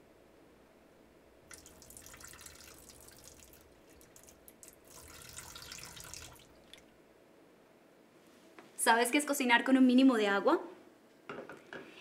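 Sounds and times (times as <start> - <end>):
water pouring off a pot: 1.5 - 6.9.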